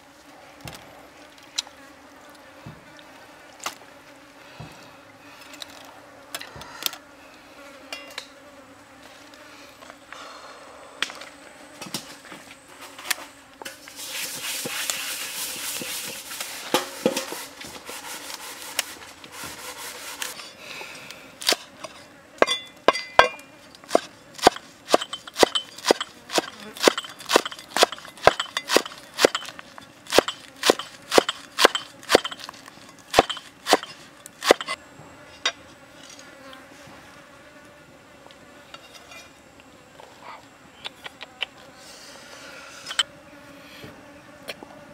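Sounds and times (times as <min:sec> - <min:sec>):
leaves rustling and tearing: 0:12.8 - 0:20.5
cleaver chopping on wooden board: 0:23.3 - 0:32.4.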